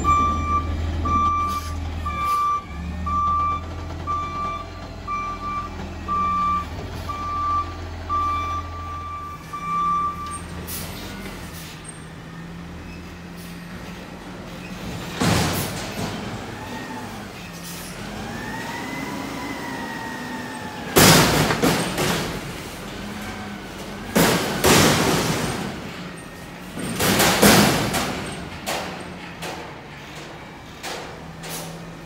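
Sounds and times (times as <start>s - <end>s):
truck engine hum: 0.0s - 32.0s
trash crashing into hopper: 14.8s - 16.6s, 20.9s - 29.8s.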